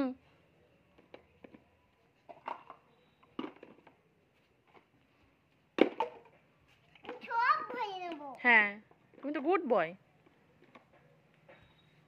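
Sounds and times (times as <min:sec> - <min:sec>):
plastic bottles clacking in mug: 0:02.3 - 0:04.0.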